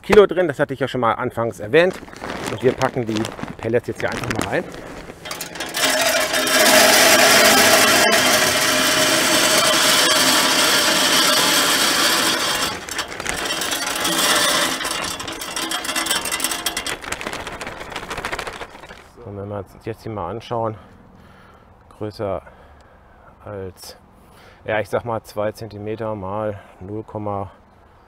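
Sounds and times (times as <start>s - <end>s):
pellets rattling onto metal: 1.8s - 19.2s.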